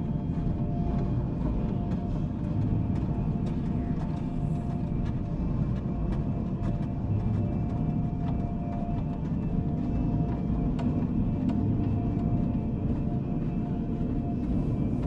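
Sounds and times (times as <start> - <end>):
deep rumbling drone: 0.0 - 15.0.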